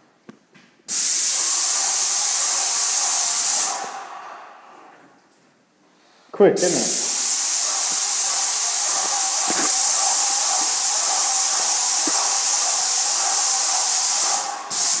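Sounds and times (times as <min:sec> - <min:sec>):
paint sprayer hissing: 0:00.9 - 0:04.0, 0:06.6 - 0:15.0.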